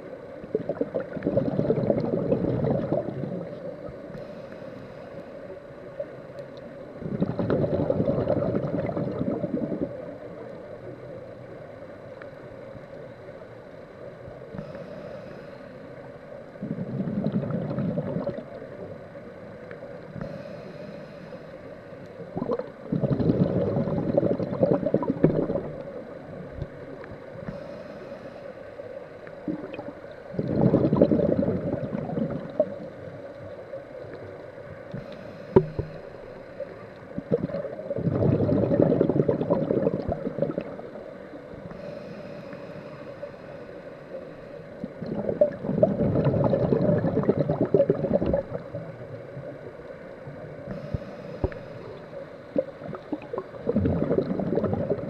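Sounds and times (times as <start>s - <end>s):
exhaled air bubbling: 0.0s - 4.6s, 5.8s - 10.6s, 16.5s - 19.1s, 22.1s - 27.8s, 29.2s - 43.6s, 44.2s - 55.0s
faint hum: 0.0s - 55.0s
regulator inhale hiss: 3.5s - 6.0s, 14.5s - 16.8s, 20.0s - 22.3s, 27.3s - 29.4s, 34.9s - 37.2s, 41.1s - 45.0s, 50.6s - 52.7s.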